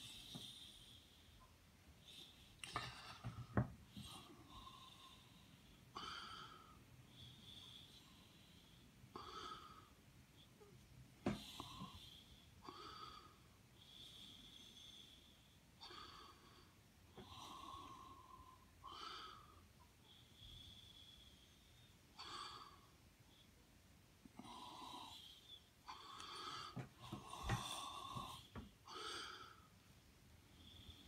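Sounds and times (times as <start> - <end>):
person breathing softly: 0.0 - 23.6, 24.2 - 31.0.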